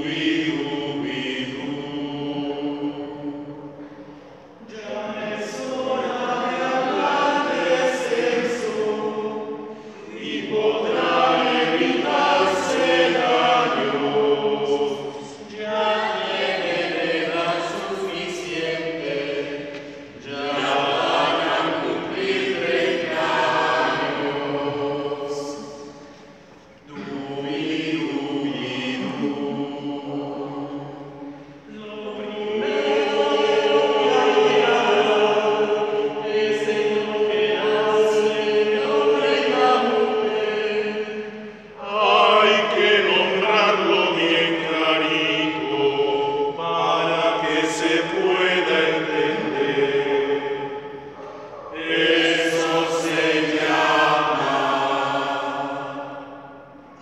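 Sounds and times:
mixed choir singing unaccompanied: 0:00.0 - 0:57.0
singers breathing: 0:09.7 - 0:10.1.

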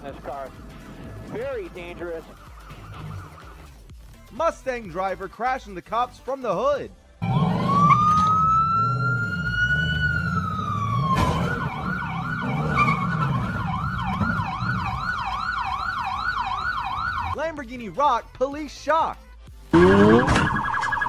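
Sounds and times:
police siren wailing and yelping: 0:02.2 - 0:03.7, 0:07.2 - 0:17.4, 0:19.7 - 0:21.0.

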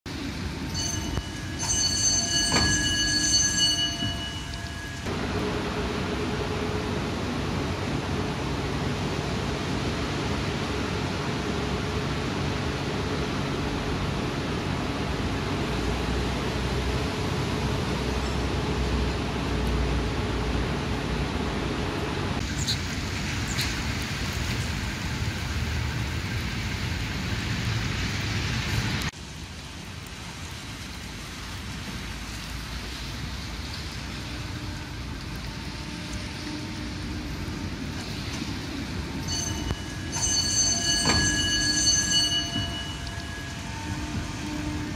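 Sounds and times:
tram rumbling on rails: 0:00.1 - 0:44.9
ringing chime: 0:00.6 - 0:05.1, 0:39.2 - 0:44.5
wheel squeaks: 0:00.7 - 0:05.1, 0:39.2 - 0:44.9.

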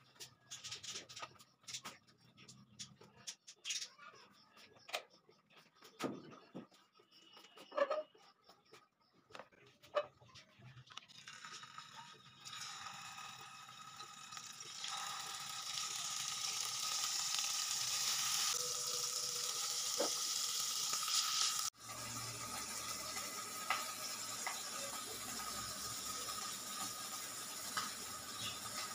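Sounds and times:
fish sizzling in hot oil: 0:11.2 - 0:28.9.

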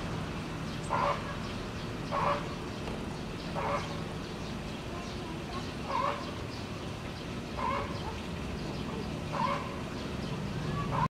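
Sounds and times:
animal calling: 0:00.9 - 0:01.5, 0:02.1 - 0:02.5, 0:03.5 - 0:04.0, 0:04.9 - 0:06.4, 0:07.5 - 0:09.8.

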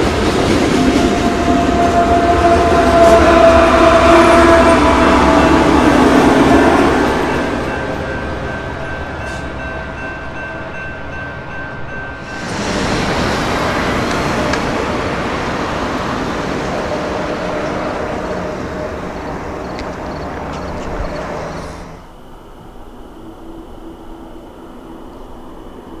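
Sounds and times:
train wheels on rails: 0:00.0 - 0:22.2
diesel locomotive engines: 0:00.0 - 0:26.0
crossing bell ringing: 0:04.5 - 0:13.3.

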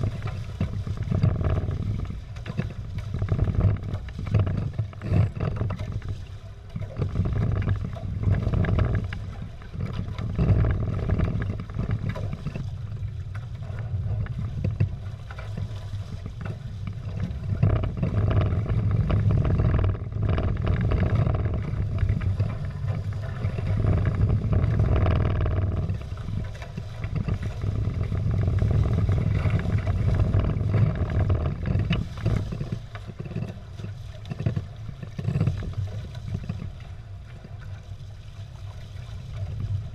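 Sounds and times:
water rushing and splashing: 0:00.0 - 0:39.9
wind buffeting microphone: 0:06.8 - 0:37.7.

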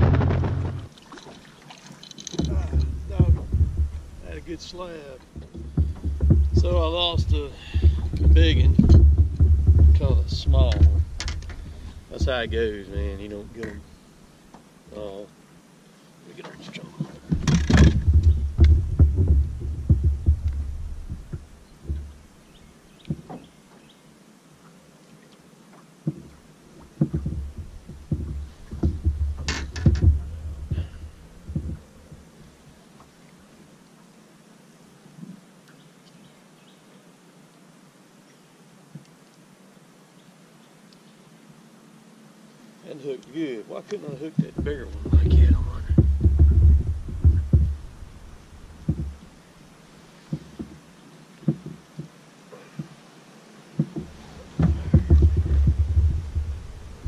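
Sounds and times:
dense low rumble: 0:00.0 - 0:00.9, 0:02.4 - 0:13.9, 0:17.4 - 0:22.7, 0:27.2 - 0:32.4, 0:44.4 - 0:49.5, 0:54.6 - 0:57.0
sharp clatter: 0:00.0 - 0:00.9
thumps and knocks on boat deck: 0:00.0 - 0:00.9, 0:02.4 - 0:13.8, 0:17.0 - 0:22.3, 0:23.0 - 0:23.5, 0:26.0 - 0:32.3, 0:44.3 - 0:49.4, 0:50.3 - 0:50.8, 0:51.4 - 0:53.0, 0:53.8 - 0:57.0.

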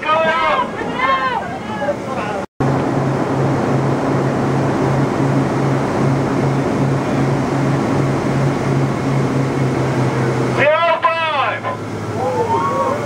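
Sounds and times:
air rushing in cabin: 0:00.0 - 0:13.0
jet engines roaring: 0:00.0 - 0:13.0
pulsing low hum: 0:02.6 - 0:13.0.

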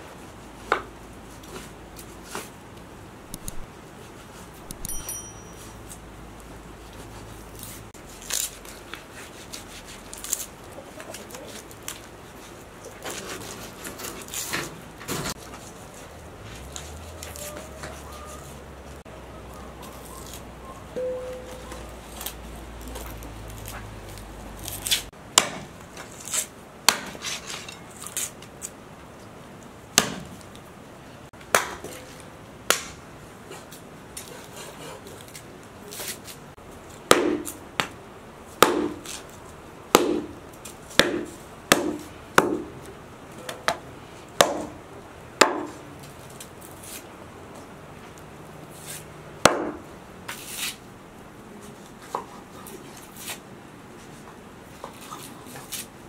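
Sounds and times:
knife chopping on wooden board: 0:37.1 - 0:37.5, 0:38.6 - 0:39.2, 0:39.9 - 0:40.3, 0:40.9 - 0:42.7, 0:49.4 - 0:49.8.

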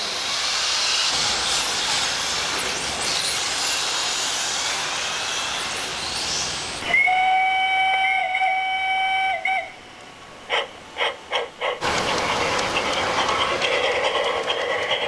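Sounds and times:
train running: 0:00.0 - 0:15.0
steam locomotive whistle: 0:06.8 - 0:09.8
locomotive chuffs: 0:10.6 - 0:15.0.

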